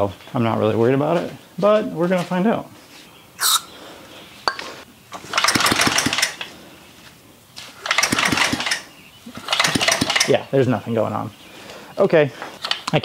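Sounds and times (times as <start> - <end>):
recoil starter rope whirr: 5.2 - 6.5, 7.8 - 10.4.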